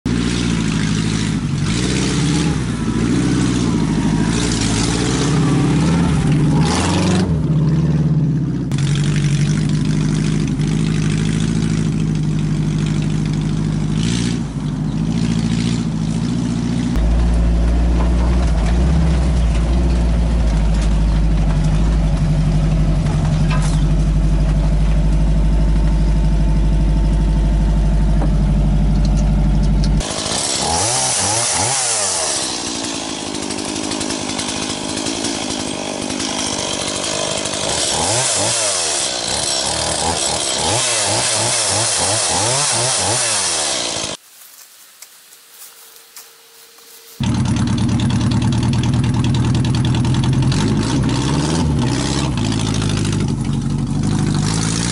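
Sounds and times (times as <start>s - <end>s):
chainsaw cutting branches: 0.1s - 7.5s, 8.7s - 24.4s, 28.4s - 54.9s
van engine running: 0.1s - 30.1s, 46.8s - 54.9s.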